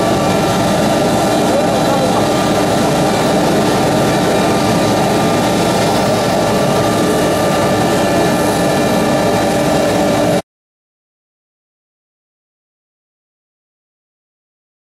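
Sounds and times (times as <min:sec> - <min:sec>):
machinery humming: 0:00.0 - 0:10.4.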